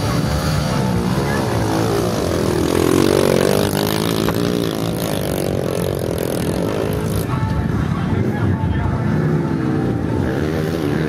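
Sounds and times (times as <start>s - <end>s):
dirt bike engine revving hard: 0.0s - 7.3s.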